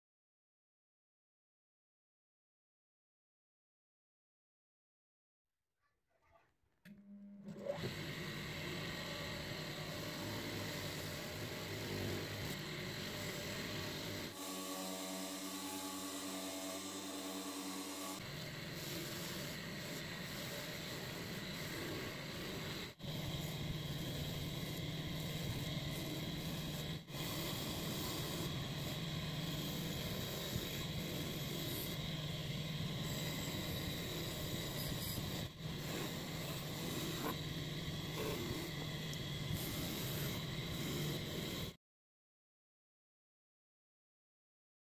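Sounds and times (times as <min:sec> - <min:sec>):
grinder pitched hum: 0:06.9 - 0:41.8.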